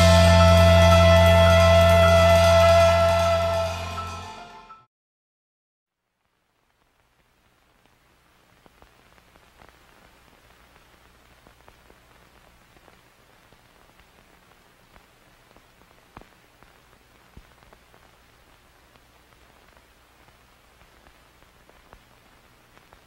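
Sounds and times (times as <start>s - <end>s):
crackles and clicks: 5.9s - 23.0s
faint steady hiss: 5.9s - 23.0s
low electrical hum: 6.0s - 23.0s.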